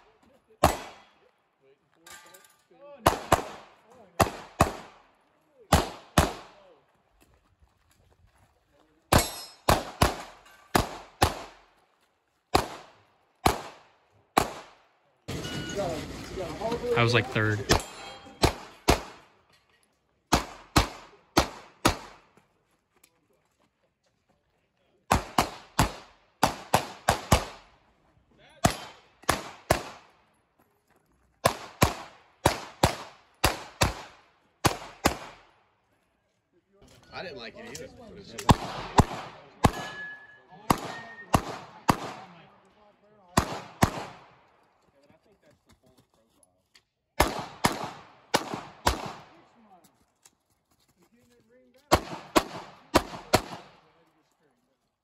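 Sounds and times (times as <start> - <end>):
pistol shots: 0.6 - 1.1, 3.0 - 5.0, 5.7 - 6.6, 9.1 - 11.6, 12.5 - 14.8, 17.6 - 19.2, 20.3 - 22.2, 25.1 - 27.6, 28.6 - 30.1, 31.4 - 35.5, 38.4 - 42.4, 43.3 - 44.4, 47.2 - 49.4, 51.9 - 53.8.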